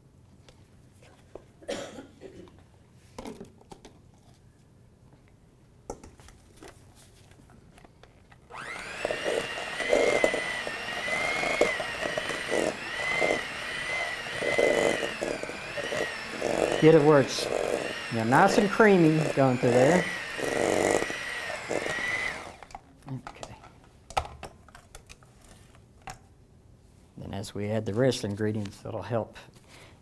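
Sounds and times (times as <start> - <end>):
electric mixer whining: 8.5 - 22.8.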